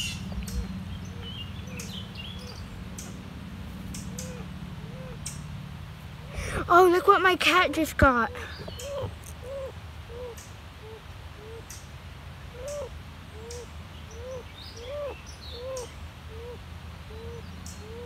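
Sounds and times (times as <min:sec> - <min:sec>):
bird cooing softly: 0:00.0 - 0:03.1, 0:04.0 - 0:05.4, 0:08.2 - 0:11.9, 0:12.5 - 0:18.0.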